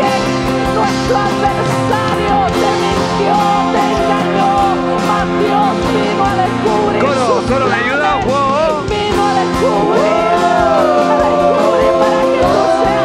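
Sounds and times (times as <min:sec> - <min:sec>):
strummed acoustic guitar: 0:00.0 - 0:10.1
held chords: 0:00.0 - 0:13.0
voices singing: 0:00.0 - 0:13.0.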